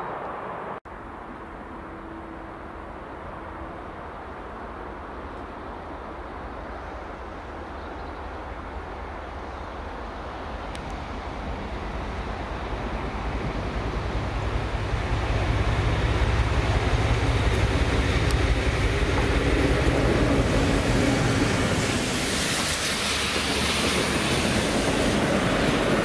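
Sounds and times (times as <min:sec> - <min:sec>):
water jets hissing on rails: 0:08.4 - 0:26.0
diesel locomotive engine running: 0:09.0 - 0:26.0.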